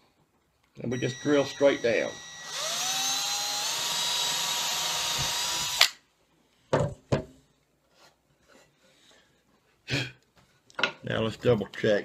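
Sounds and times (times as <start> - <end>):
cordless drill whining: 0.9 - 6.0.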